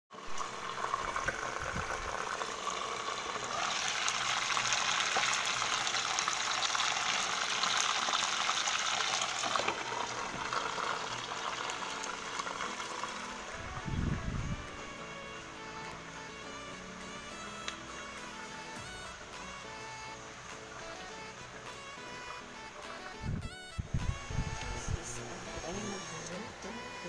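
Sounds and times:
fish sizzling in hot oil: 0.2s - 13.6s.

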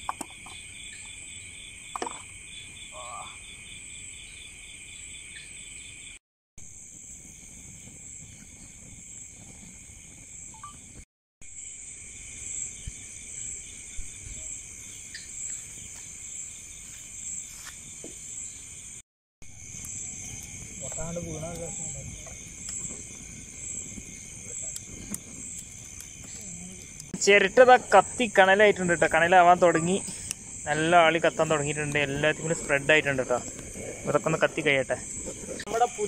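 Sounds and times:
crickets chirping: 0.0s - 36.0s
faint fire crackles: 6.6s - 11.0s, 19.5s - 36.0s.

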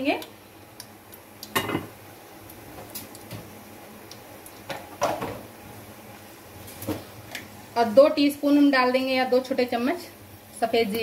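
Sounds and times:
sharp oil crackles and pops: 0.0s - 5.5s
spices frying in hot oil: 0.0s - 11.0s.

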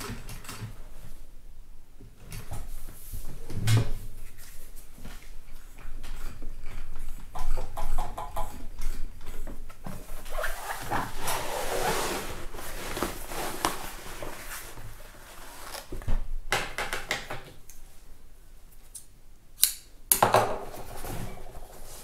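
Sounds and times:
canvas fabric rustling and dragging: 10.0s - 15.9s.

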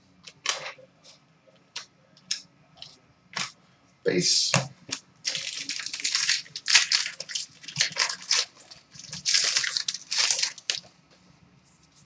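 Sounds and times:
card pack wrapper tearing and crinkling: 5.3s - 10.8s.

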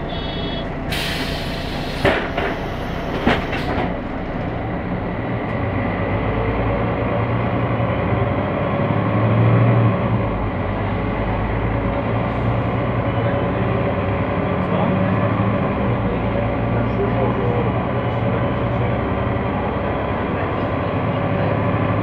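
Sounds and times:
diesel bus engine running: 0.0s - 22.0s
compressed air hiss: 0.2s - 3.1s
bus doors closing thuds: 0.9s - 4.1s.

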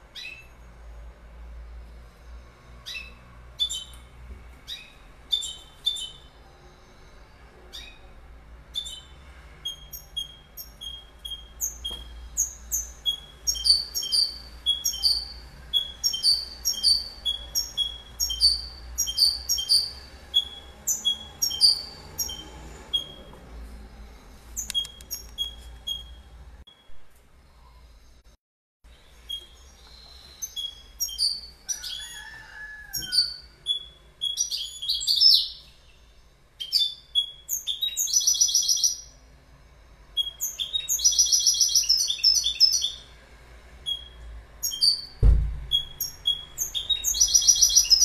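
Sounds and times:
goldfinch singing: 8.8s - 23.2s, 45.7s - 48.0s.

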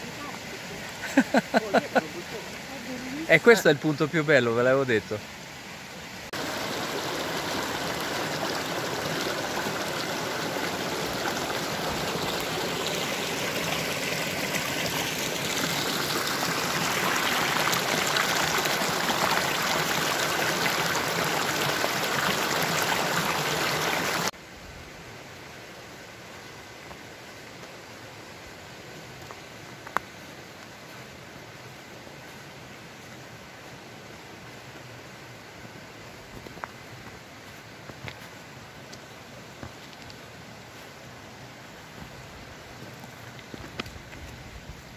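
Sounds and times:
stream rushing over rocks: 0.0s - 44.9s.

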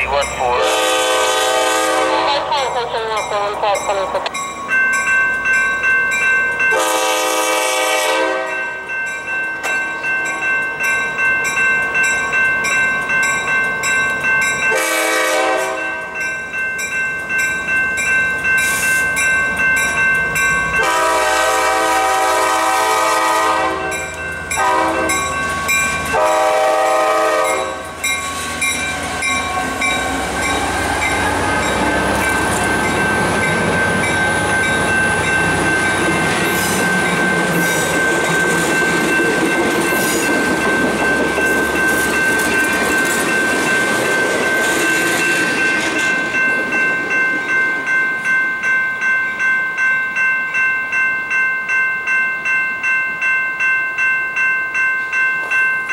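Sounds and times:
train cars rolling on rails: 0.0s - 50.6s
crossing bell ringing: 0.0s - 55.9s
locomotive horn blasts: 0.5s - 2.9s, 6.7s - 8.6s, 14.7s - 15.8s, 20.8s - 24.0s, 24.6s - 25.3s, 26.1s - 27.8s.

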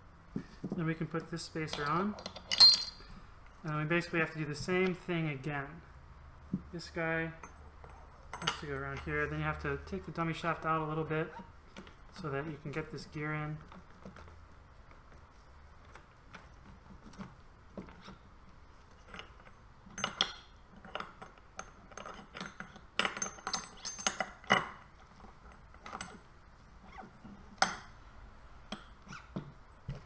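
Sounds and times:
steel gears clinking together: 2.5s - 3.0s.

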